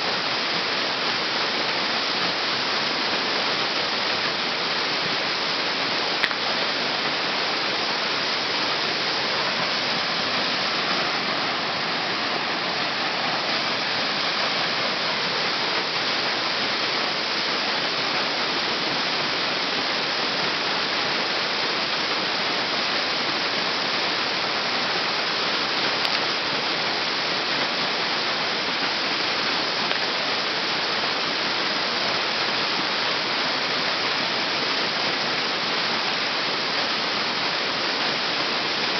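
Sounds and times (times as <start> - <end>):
waterfall rushing onto rocks: 0.0 - 38.9.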